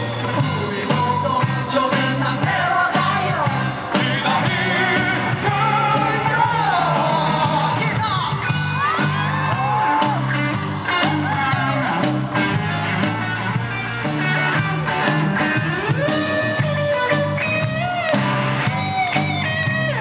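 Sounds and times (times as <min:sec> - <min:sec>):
person singing lead vocal: 0:00.0 - 0:08.4
drums: 0:00.0 - 0:20.0
electric guitar: 0:00.0 - 0:20.0
keyboard: 0:00.0 - 0:20.0.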